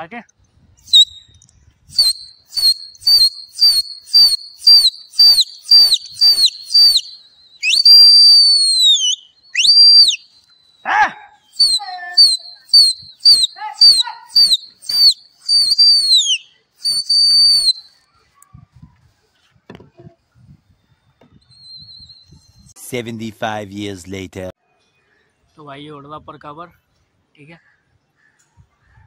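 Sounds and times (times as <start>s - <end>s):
person whistling shrilly: 0.8s - 18.0s.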